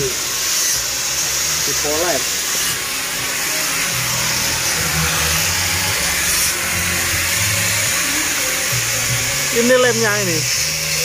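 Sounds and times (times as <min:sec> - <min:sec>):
electric power tool whirring: 0:00.0 - 0:11.0
background music bass notes: 0:03.1 - 0:10.9.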